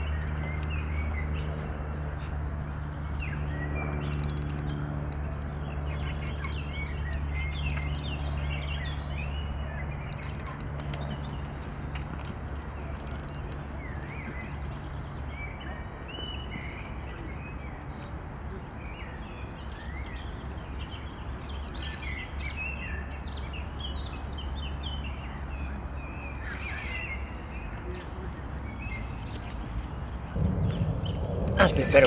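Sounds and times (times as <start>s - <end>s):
small birds chirping: 2.2s - 32.0s.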